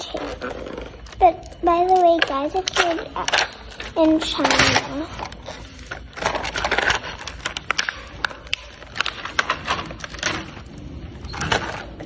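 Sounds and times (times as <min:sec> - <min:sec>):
plastic toy pieces clicking: 0:00.0 - 0:10.5
rustling and scraping: 0:03.2 - 0:12.0.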